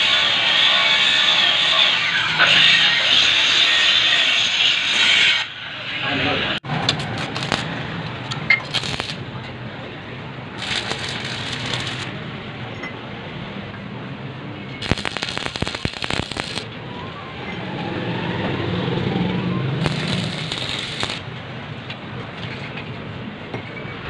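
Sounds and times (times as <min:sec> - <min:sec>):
welding arc crackling: 0:07.0 - 0:09.4, 0:10.5 - 0:12.2, 0:14.8 - 0:16.8, 0:19.8 - 0:21.5.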